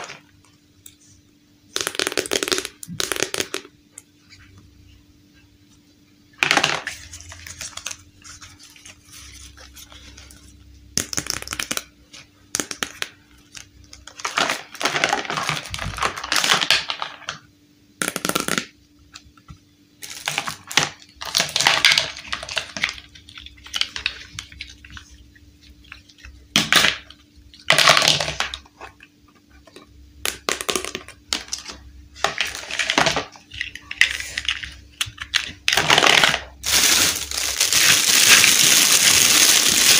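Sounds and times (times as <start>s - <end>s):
plastic toy bricks clattering: 26.5s - 28.7s, 30.4s - 39.9s.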